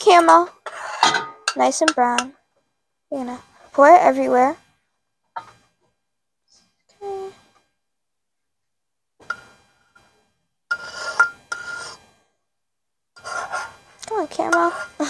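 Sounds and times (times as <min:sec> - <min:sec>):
metal spoon scraping saucepan: 0:00.2 - 0:02.3, 0:10.7 - 0:12.0, 0:13.2 - 0:15.0.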